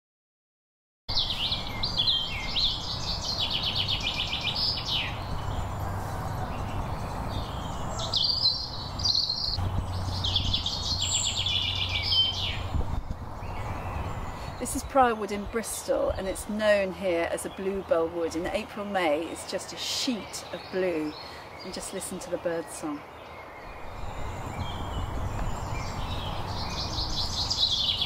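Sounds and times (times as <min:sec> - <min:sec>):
songbird trilling song: 0:01.1 - 0:28.0.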